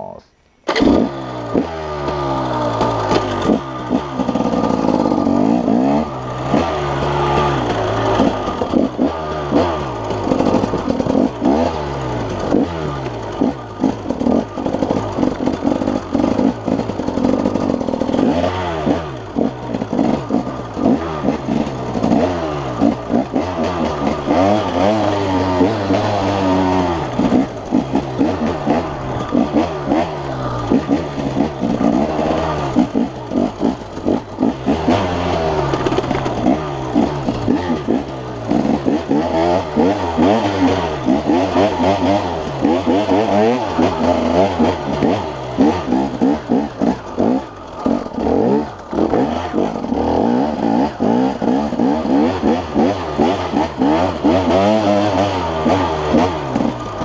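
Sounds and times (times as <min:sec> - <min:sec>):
dirt bike engine revving: 0:00.0 - 0:57.0
bike rattling over bumps: 0:00.6 - 0:57.0.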